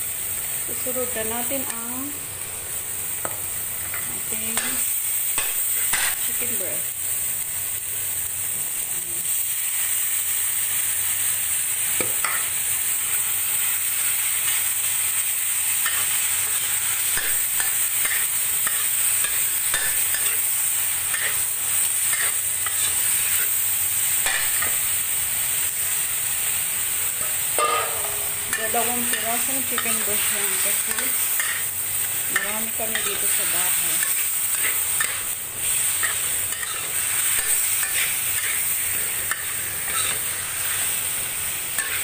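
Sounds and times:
chicken sizzling in oil: 0.0s - 42.0s
metal spatula scraping wok: 27.2s - 41.0s, 41.8s - 42.0s.

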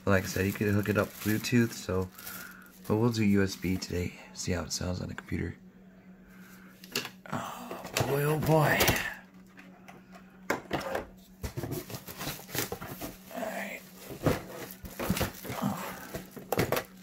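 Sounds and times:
plastic packaging crinkling: 0.0s - 3.9s, 11.5s - 17.0s.

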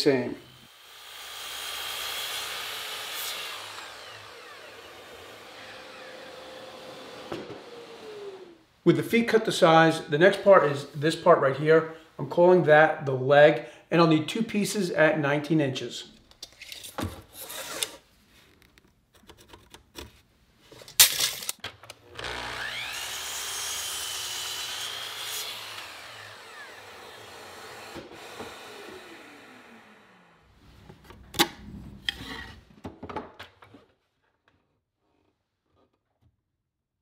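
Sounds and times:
miter saw whining and cutting wood: 0.4s - 8.6s, 22.1s - 30.5s
saw motor winding down: 0.4s - 8.6s, 22.1s - 30.5s.

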